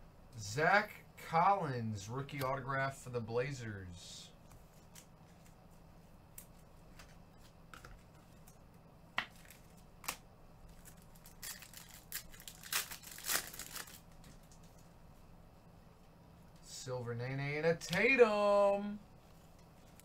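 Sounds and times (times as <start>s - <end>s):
wrappers being torn open: 9.3s - 14.3s.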